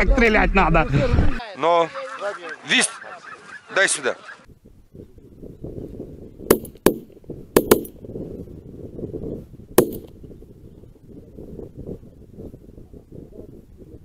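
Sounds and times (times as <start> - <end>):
wind on microphone: 0.0 - 1.4, 4.5 - 14.0
shotgun shots: 6.5 - 7.9, 9.8 - 10.1.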